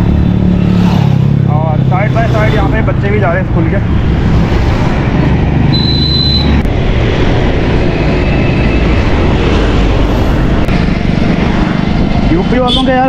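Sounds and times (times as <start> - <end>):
road traffic: 0.0 - 13.0
wind rumble on microphone: 6.4 - 12.6.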